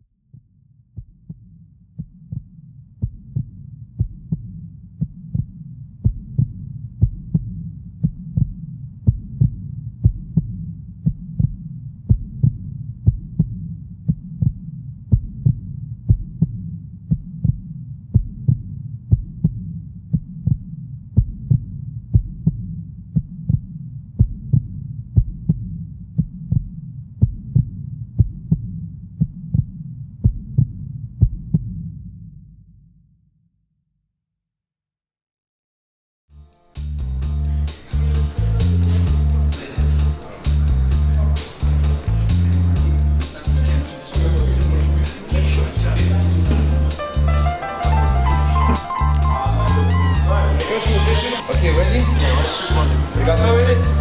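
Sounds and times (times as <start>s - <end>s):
low repeating thump: 0.3s - 32.2s
deep hum: 36.8s - 54.0s.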